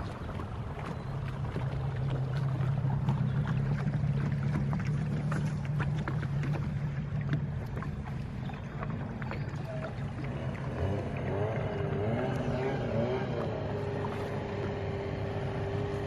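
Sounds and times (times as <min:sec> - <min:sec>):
boat engine humming: 0:00.0 - 0:16.0
water splashing against hull: 0:00.0 - 0:16.0.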